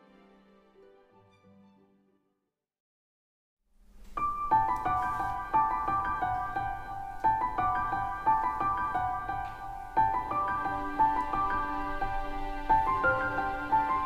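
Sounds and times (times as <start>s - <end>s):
gentle piano tune: 3.8s - 14.0s.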